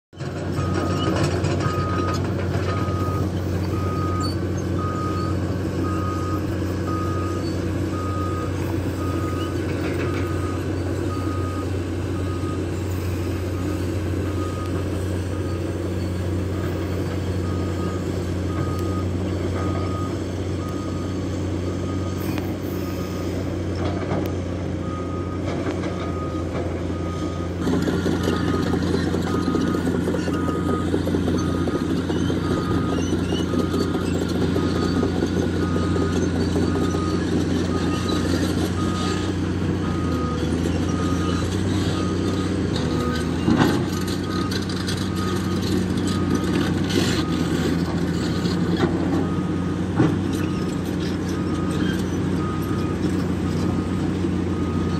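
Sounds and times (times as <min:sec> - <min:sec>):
excavator diesel engine running: 0:00.1 - 0:54.9
travel alarm beeping: 0:03.8 - 0:12.6.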